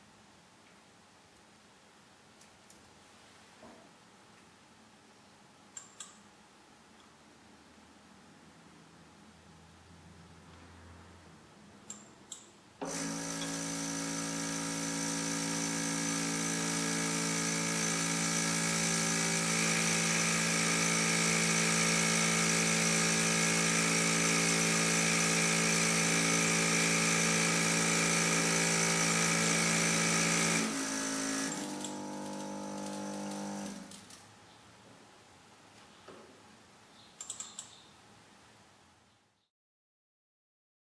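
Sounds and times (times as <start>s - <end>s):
short clicks: 5.7s - 6.2s, 37.2s - 37.9s
vibrating feeder buzzing: 12.9s - 33.9s.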